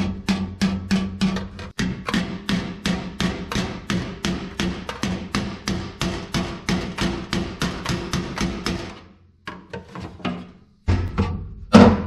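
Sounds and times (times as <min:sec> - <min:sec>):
hammer tapping sheet steel: 0:00.0 - 0:09.1.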